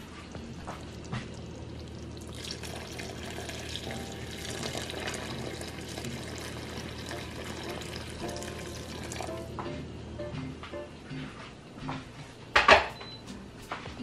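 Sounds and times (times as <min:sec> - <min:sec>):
water pouring into a pot: 0:00.9 - 0:09.4.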